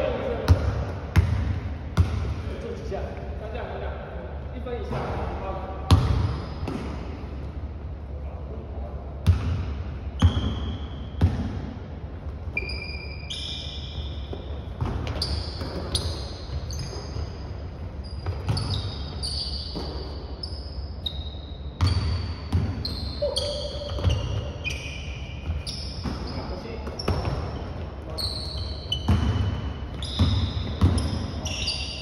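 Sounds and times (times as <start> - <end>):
sneakers squeaking on wood: 10.2 - 11.4, 12.4 - 32.0.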